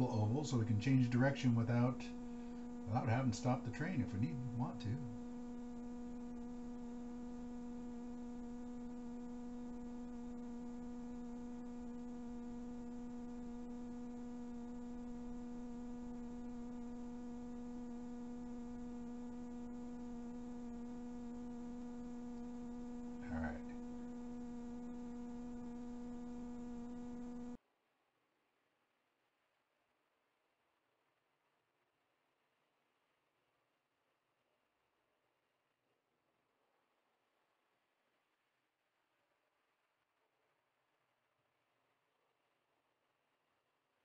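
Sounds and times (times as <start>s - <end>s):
electrical hum: 0.0s - 27.6s.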